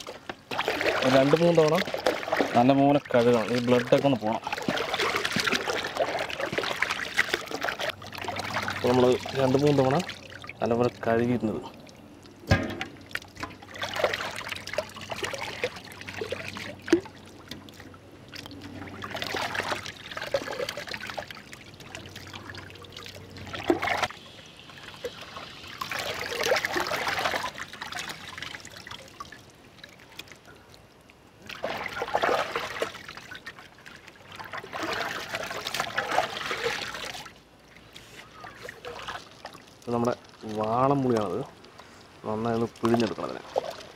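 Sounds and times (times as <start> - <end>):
water pouring and splashing: 0.0 - 43.9.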